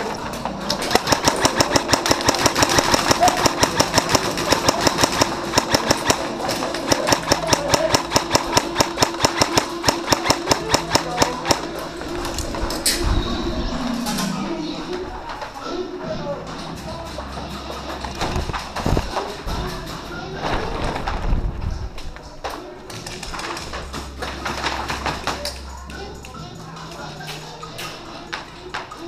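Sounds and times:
airsoft guns rapid firing: 0.8s - 11.7s.

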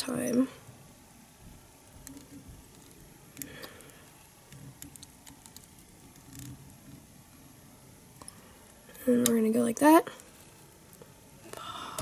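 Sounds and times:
small clicks and soft rustles: 1.4s - 7.4s.

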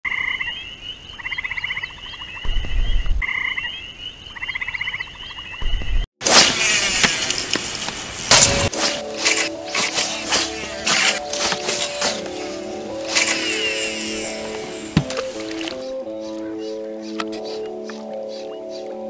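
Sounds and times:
frogs trilling: 0.1s - 6.0s
high chirring: 8.4s - 16.0s.

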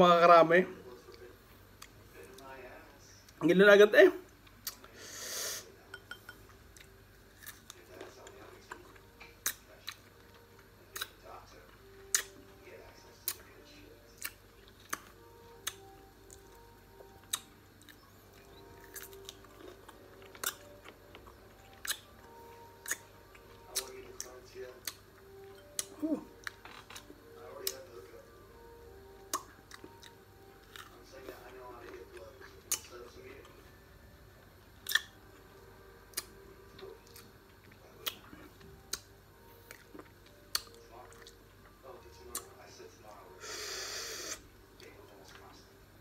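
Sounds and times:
person chewing: 4.3s - 4.9s, 6.4s - 12.4s, 14.2s - 27.8s, 29.2s - 33.0s, 34.8s - 35.2s, 36.1s - 42.5s.

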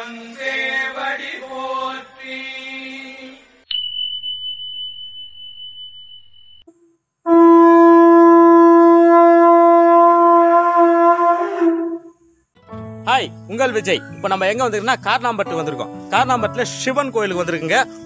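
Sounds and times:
high ringing tone: 3.7s - 7.0s
conch shell horn blowing: 7.2s - 12.3s.

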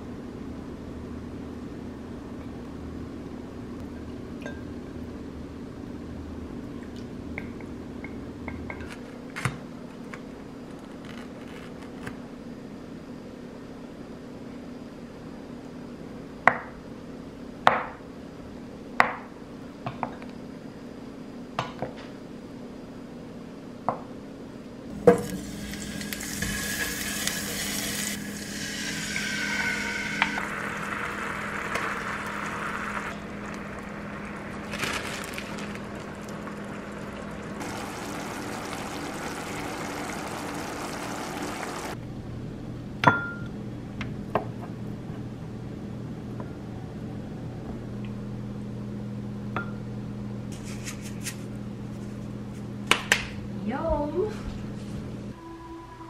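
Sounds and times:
frying pan sizzling hiss: 24.9s - 42.0s.

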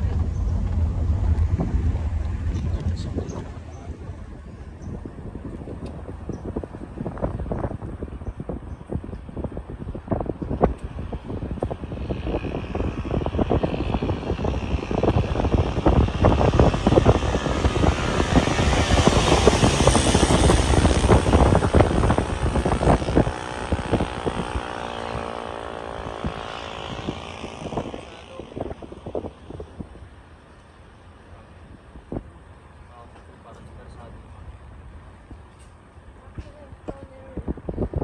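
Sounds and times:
car engine drone: 0.0s - 8.0s, 10.2s - 36.7s
road noise: 0.0s - 38.0s
wind buffeting microphone: 0.0s - 38.0s.

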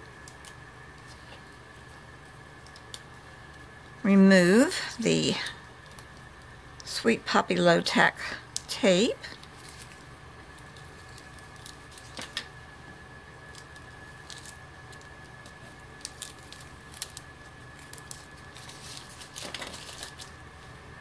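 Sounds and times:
tape peeling off paper: 9.4s - 12.6s, 13.3s - 20.8s.

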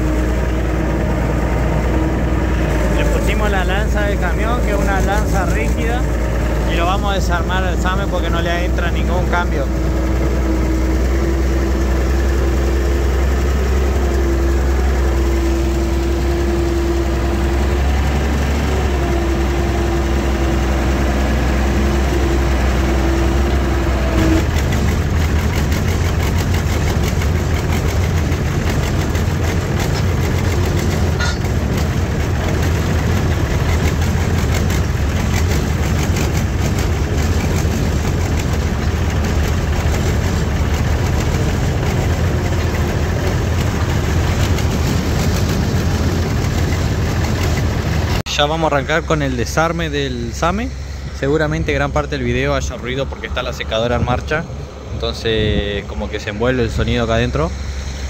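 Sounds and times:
steady whine: 0.0s - 58.0s
tractor engine running: 0.0s - 58.0s.

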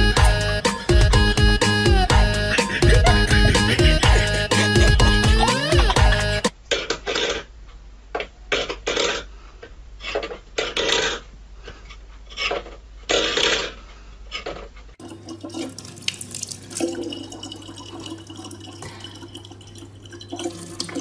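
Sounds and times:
tap water running into plastic bottle: 15.0s - 21.0s.

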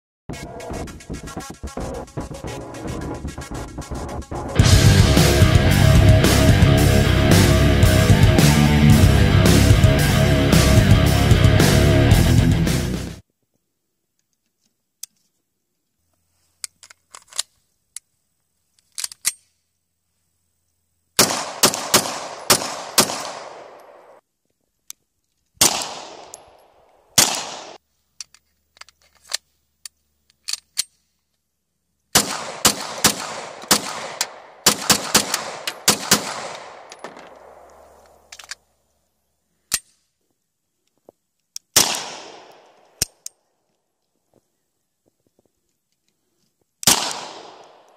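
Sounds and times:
pistol shots with echo: 21.2s - 24.2s, 25.6s - 26.6s, 27.2s - 27.8s, 32.2s - 37.9s, 41.8s - 43.0s, 46.8s - 47.9s.

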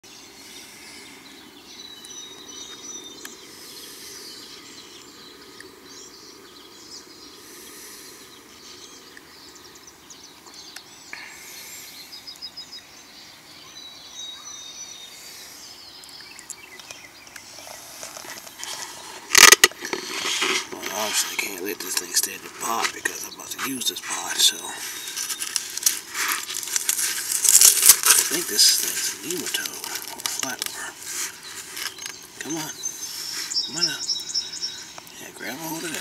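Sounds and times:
outdoor background noise: 0.0s - 36.0s
high bird chirps: 13.6s - 36.0s.

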